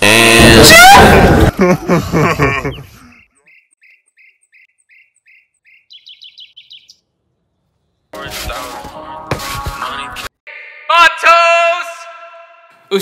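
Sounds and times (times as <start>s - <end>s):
bird singing chirps: 3.0s - 8.1s.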